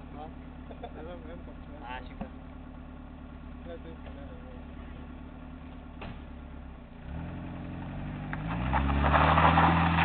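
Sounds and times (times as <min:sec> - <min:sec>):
car engine idling and revving: 0:00.0 - 0:10.0
tyres spinning on gravel: 0:07.2 - 0:10.0.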